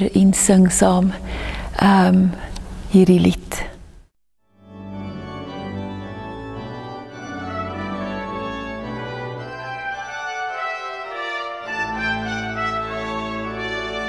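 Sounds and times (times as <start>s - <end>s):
deep organ pedal bass: 4.6s - 14.0s
pipe organ playing a hymn: 4.6s - 14.0s.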